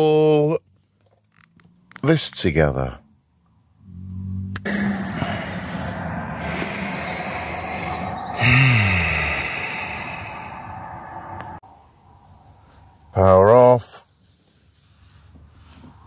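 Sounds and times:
van engine running: 3.7 - 10.6.

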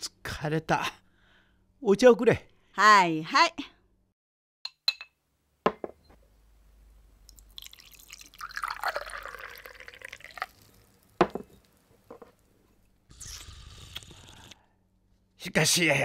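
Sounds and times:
cup set down with a knock: 5.7 - 6.0, 11.2 - 12.3
tea pouring into a cup: 7.2 - 11.8.

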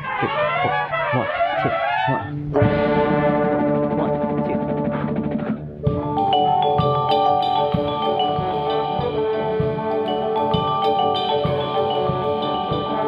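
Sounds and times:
percussion: 0.0 - 13.0
vibraphone notes and chords: 5.9 - 13.0.

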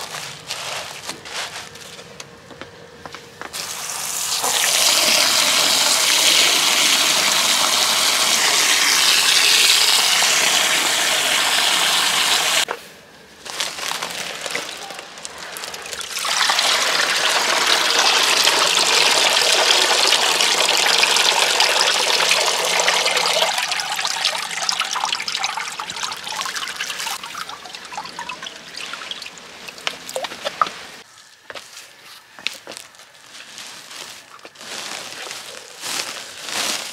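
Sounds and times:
hose nozzle spraying water into basin: 3.6 - 12.7
water pouring from soaked sack: 13.6 - 31.0.

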